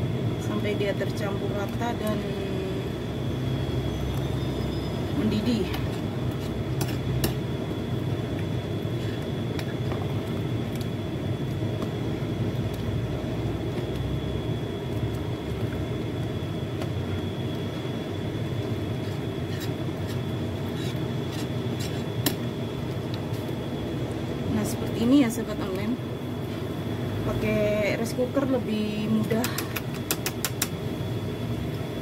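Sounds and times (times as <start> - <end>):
faint high steady tone: 0.4 - 6.0.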